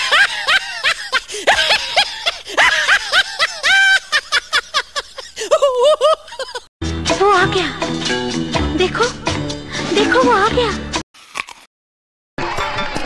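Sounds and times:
high-pitched human laugh: 0.0s - 6.7s.

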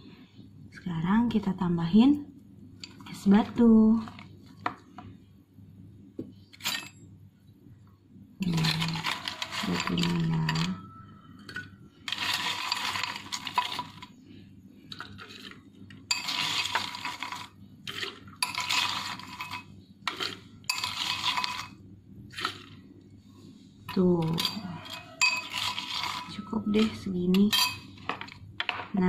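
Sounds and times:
ice cubes clinking in glass: 8.4s - 14.1s, 14.9s - 22.8s, 24.2s - 28.4s.

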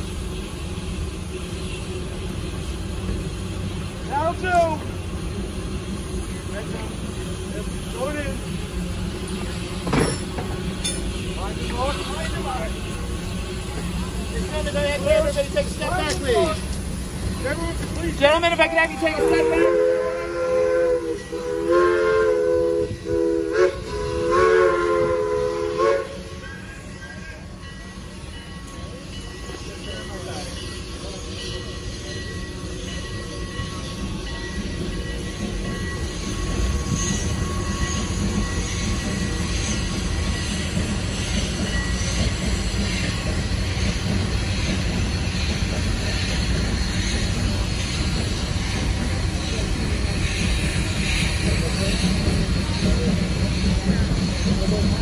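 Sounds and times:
low steam hiss: 0.0s - 55.0s
steam locomotive chime whistle: 18.2s - 55.0s.

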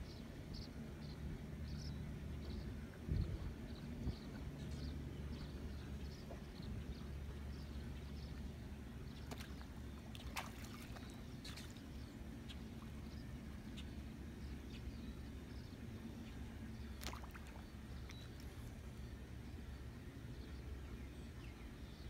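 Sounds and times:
low steady rumble: 0.0s - 22.0s
water splashing and sloshing: 2.9s - 19.8s.

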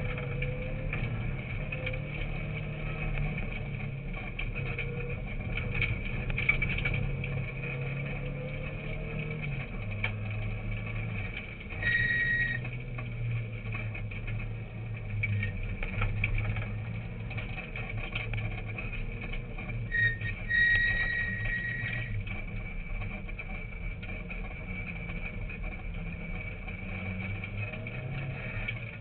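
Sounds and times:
rally car engine running hard: 0.0s - 29.0s
short high tone: 11.8s - 12.6s.

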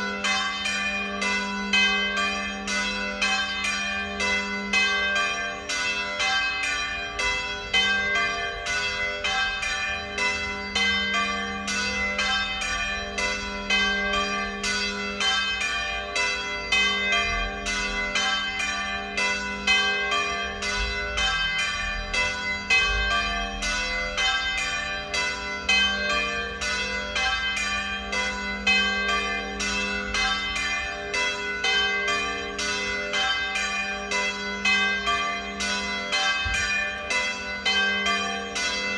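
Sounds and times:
church bells pealing: 0.0s - 38.9s.

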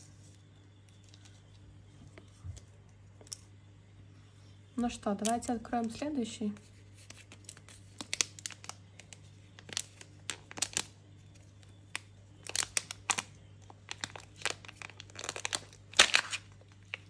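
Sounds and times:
wrapper crinkling as torn: 7.0s - 17.0s.

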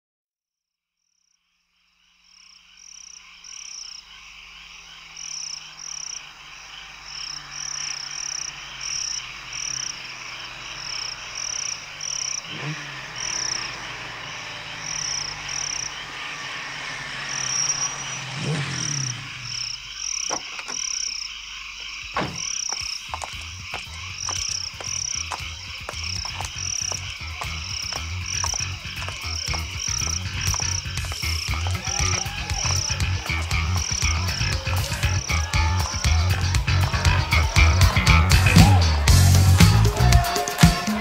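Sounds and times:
insects chirping: 0.7s - 41.0s
frogs croaking: 0.9s - 41.0s
sharp knocks: 20.3s - 20.8s, 22.0s - 23.4s.

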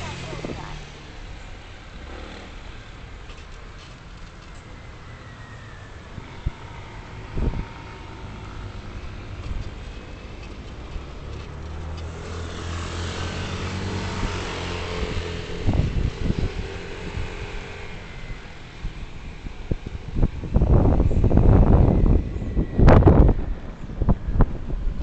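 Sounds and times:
vehicle engine hum: 0.0s - 25.0s
wind buffeting microphone: 5.9s - 25.0s.

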